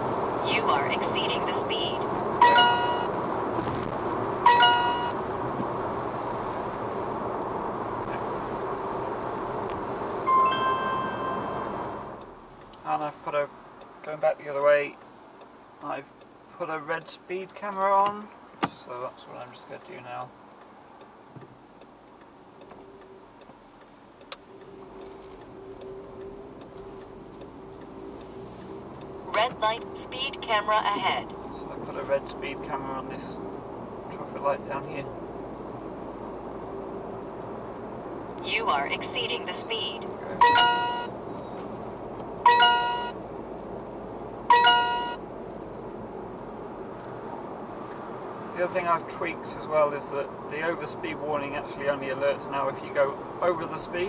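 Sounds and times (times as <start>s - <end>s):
car engine hum: 0.0s - 54.0s
turn signal ticking: 0.2s - 5.9s, 9.4s - 34.4s, 35.0s - 49.5s
radar detector alert chime: 2.4s - 3.1s, 4.5s - 5.2s, 10.3s - 11.7s, 40.4s - 41.1s, 42.5s - 43.2s, 44.5s - 45.2s.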